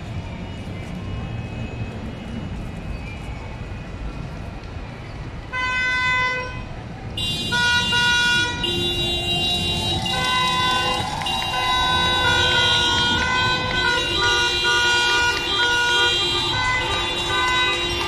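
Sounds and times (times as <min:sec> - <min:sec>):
steady street rumble: 0:00.0 - 0:18.0
many horns honking: 0:05.5 - 0:18.0.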